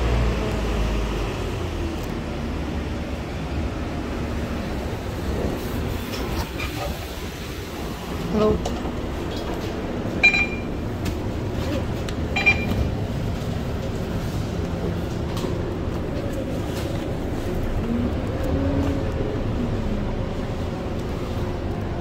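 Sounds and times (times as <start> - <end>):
bus engine low rumble: 0.0 - 22.0
short high beeps: 10.2 - 10.7, 12.4 - 12.8.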